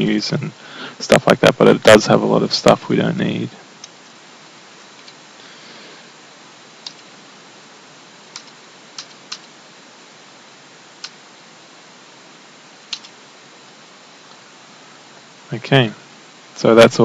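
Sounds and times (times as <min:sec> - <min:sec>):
steady hiss: 0:00.0 - 0:17.0
keyboard keystroke clicks: 0:12.9 - 0:13.2.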